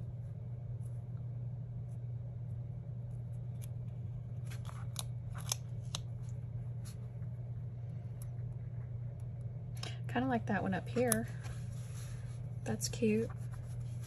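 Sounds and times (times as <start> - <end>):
steady low hum: 0.0 - 14.0
paper sticker clicks and crinkles: 4.4 - 6.4.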